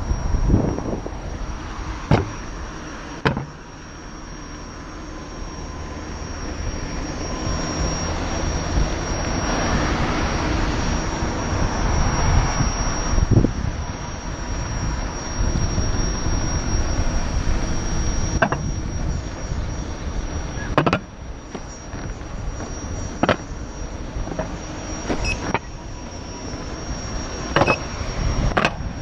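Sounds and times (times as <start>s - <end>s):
wind buffeting microphone: 0.0s - 3.6s, 6.5s - 29.0s
thin high whine: 0.0s - 29.0s
sharp knocks: 2.1s - 2.4s, 3.2s - 3.6s, 20.8s - 21.0s, 23.2s - 23.4s.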